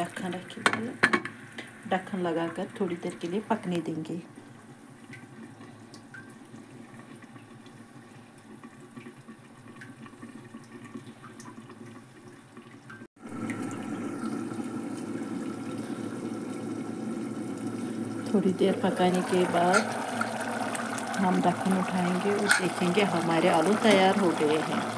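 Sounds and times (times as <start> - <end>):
pressure cooker hissing: 15.7 - 24.9.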